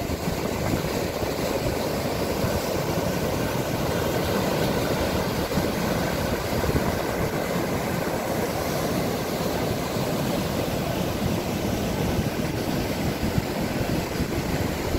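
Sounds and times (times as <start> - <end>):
river rapids rushing over rocks: 0.0 - 14.9.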